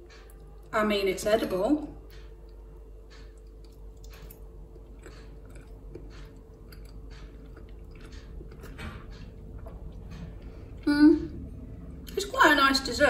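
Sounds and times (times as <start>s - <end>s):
person chewing soft food: 2.0s - 12.2s.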